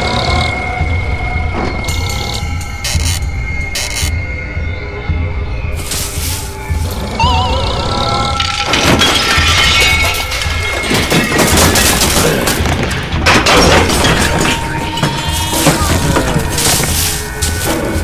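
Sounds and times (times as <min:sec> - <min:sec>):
dramatic music with low beat: 0:00.0 - 0:18.0
crashing smashing impacts: 0:08.4 - 0:18.0.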